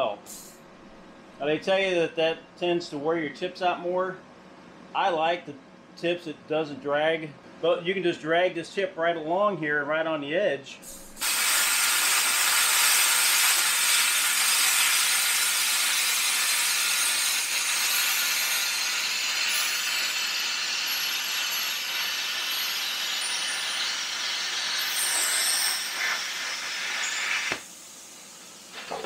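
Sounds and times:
plasma cutter hissing: 10.8 - 29.0.

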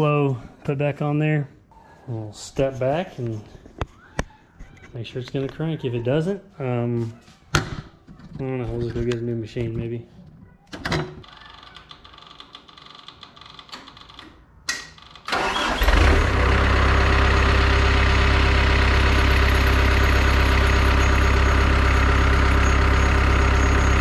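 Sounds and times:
diesel engine cranking and idling: 15.3 - 24.0.

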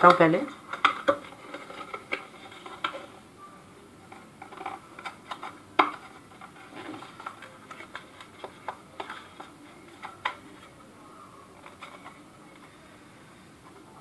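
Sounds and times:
clicks and taps of packaging: 0.0 - 3.1, 4.1 - 10.7.

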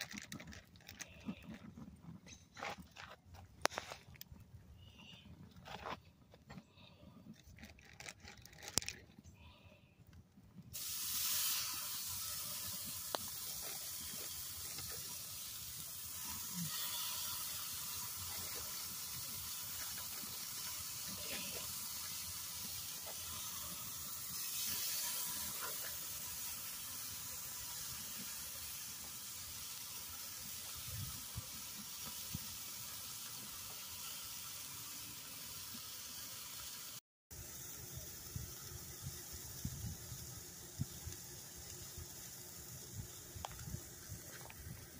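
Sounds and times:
steaks sizzling on a grill: 10.8 - 44.9.

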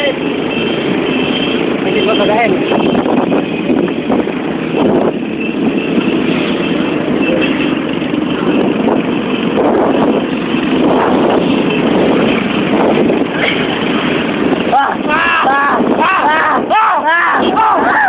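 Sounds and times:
motorbike engines running: 0.0 - 18.0
wind buffeting microphone: 0.3 - 18.0.

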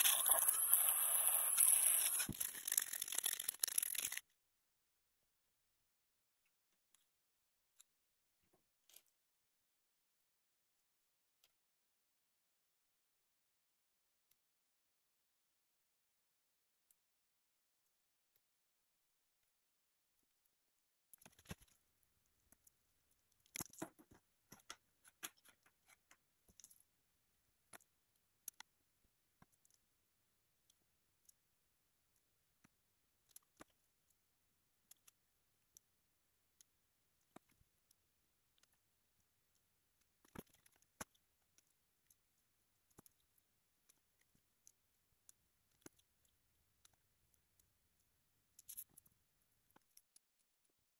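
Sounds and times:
plastic pipe fittings clicking: 0.0 - 4.2.

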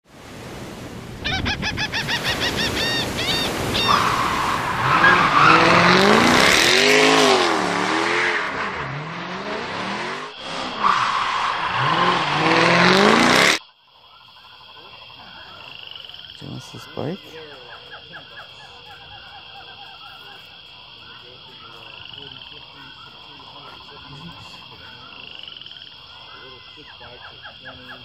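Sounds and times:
tyre squeals: 2.1 - 7.6, 10.0 - 13.6
car engines revving: 3.6 - 13.6, 20.6 - 28.0.

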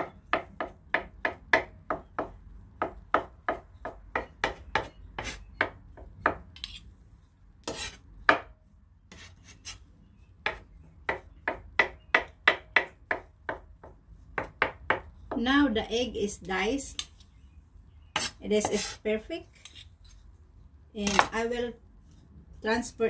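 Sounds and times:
knife chopping on wooden board: 0.0 - 6.5, 7.7 - 8.5, 10.4 - 15.4
knife scraping knocks: 7.6 - 8.5.

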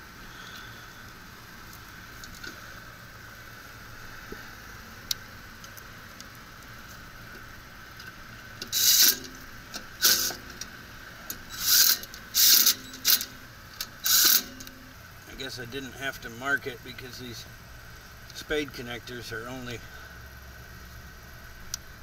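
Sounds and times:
cordless drill bursts: 14.0 - 14.4.

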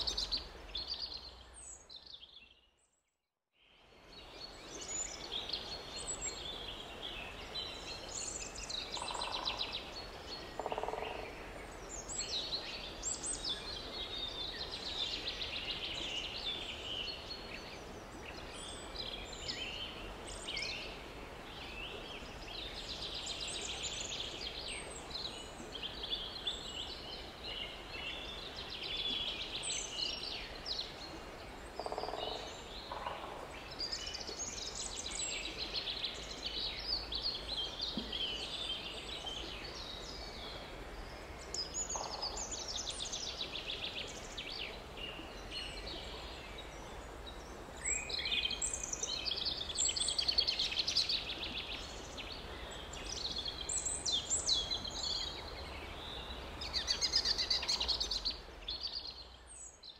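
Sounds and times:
birds chirping and trilling: 8.2 - 9.7, 10.6 - 11.3, 31.8 - 40.4.

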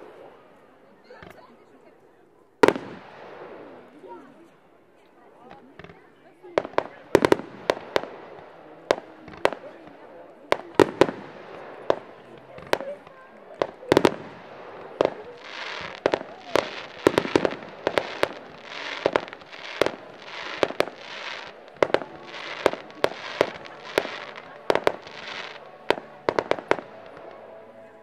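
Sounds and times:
firework bangs: 2.6 - 4.0, 6.6 - 27.6
hissing crackle of fireworks: 2.6 - 4.3, 5.6 - 27.8.

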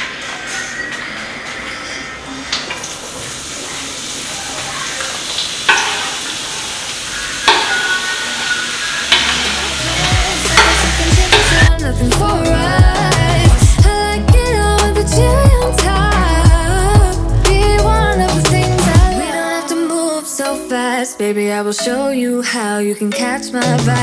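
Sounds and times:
vegetables sizzling in frying pan: 2.8 - 11.7
background music with beat: 9.1 - 22.1, 23.0 - 24.0.

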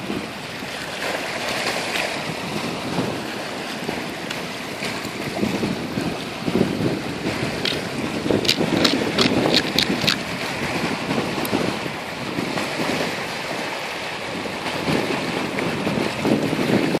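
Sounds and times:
surf washing across sand: 0.0 - 17.0
wind buffeting microphone: 0.0 - 17.0
hand digging in sand clicks: 7.6 - 7.8, 8.5 - 10.2.

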